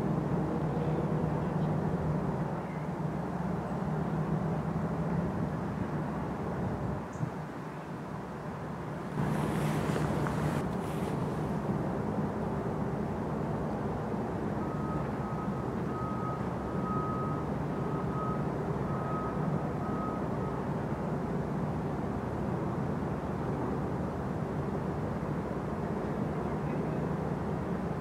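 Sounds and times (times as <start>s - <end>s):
ship diesel engine drone: 8.8s - 28.0s
high reversing beeps: 14.6s - 20.6s.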